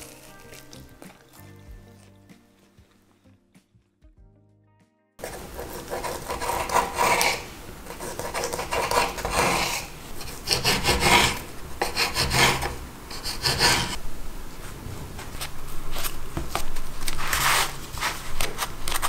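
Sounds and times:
knife rasping on wooden board: 5.2s - 14.0s.

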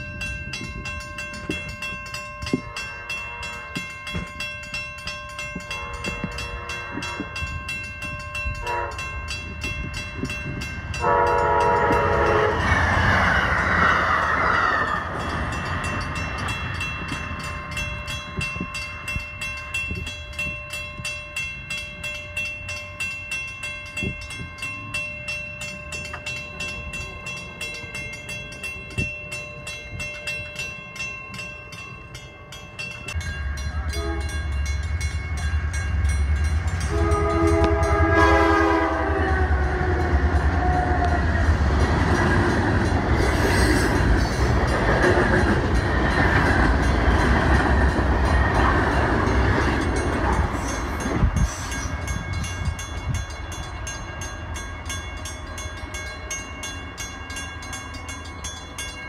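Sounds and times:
crossing bell ringing: 0.0s - 59.0s
freight train wheels passing: 0.0s - 59.0s
locomotive horn: 5.7s - 7.4s, 8.6s - 9.2s, 11.0s - 12.8s, 33.7s - 34.5s, 36.8s - 41.4s.

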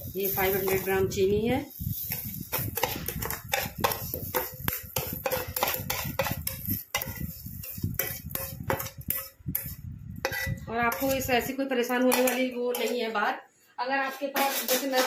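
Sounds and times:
steel spoon clinking in bowl: 2.8s - 11.2s.

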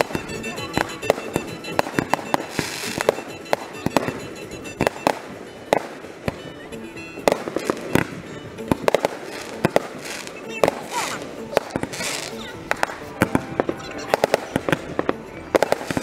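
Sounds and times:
firework shells bursting: 0.0s - 16.0s
hissing crackle: 8.8s - 13.0s.

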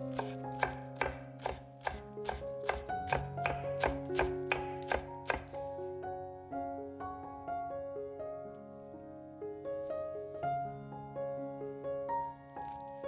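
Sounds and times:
knife chopping on wooden board: 0.0s - 5.5s
soft background music: 0.0s - 13.0s.

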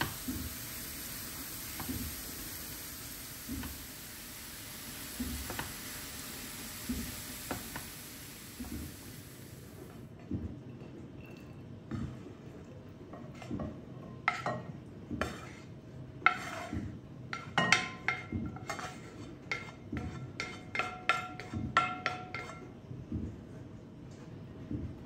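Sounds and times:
wooden spoon tapping on pan: 1.7s - 2.2s, 3.4s - 3.8s, 5.1s - 5.8s, 6.8s - 8.0s, 17.3s - 18.6s, 19.5s - 22.6s.

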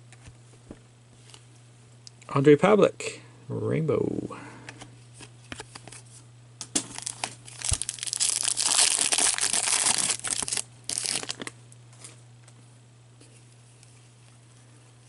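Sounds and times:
foil wrapper tearing and crinkling: 6.8s - 11.6s.

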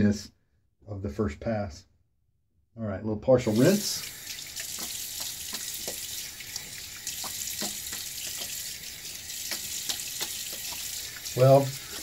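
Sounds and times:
faucet running into sink: 3.5s - 12.0s
water splashing on face: 3.5s - 12.0s.

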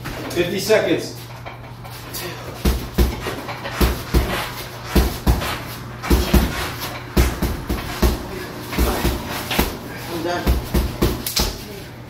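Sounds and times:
gloves punching heavy bag: 2.6s - 11.6s.

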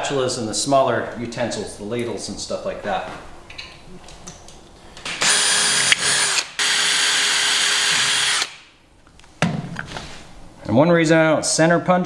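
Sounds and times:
cordless drill boring through metal: 5.2s - 8.5s.

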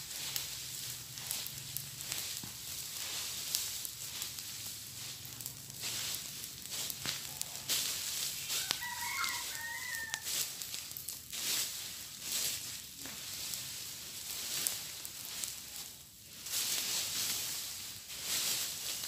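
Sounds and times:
leaves and brush crackling in fire: 0.0s - 19.0s
rooster crowing: 8.4s - 10.3s.

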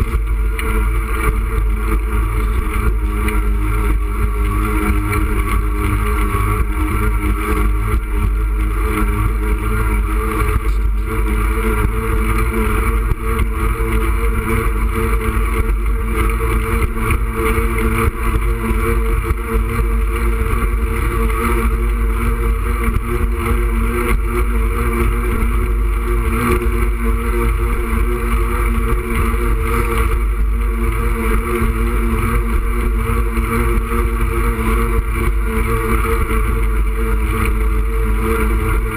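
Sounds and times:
wind rumbling on microphone: 0.0s - 38.9s.

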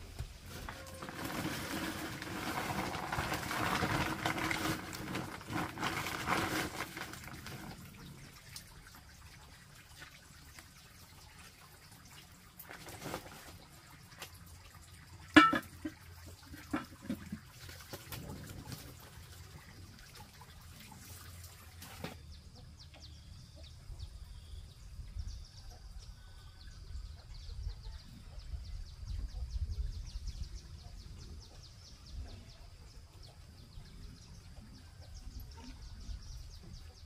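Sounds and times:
water pouring: 0.4s - 22.2s.

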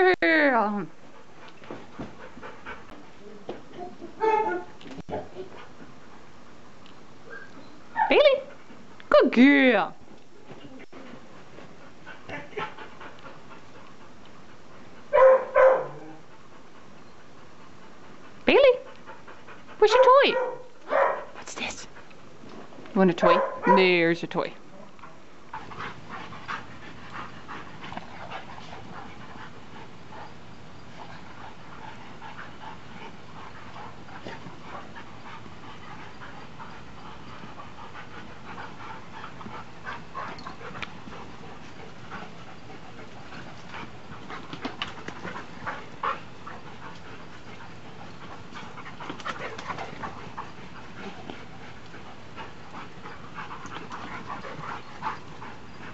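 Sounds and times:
dogs panting: 0.9s - 55.9s
dogs scuffling: 25.0s - 55.9s.

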